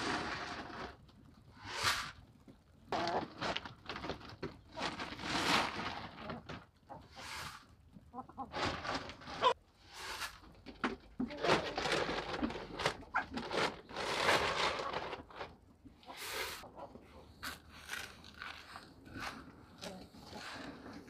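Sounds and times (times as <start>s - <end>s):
hens clucking: 2.9s - 3.5s, 6.3s - 9.6s, 15.9s - 17.4s.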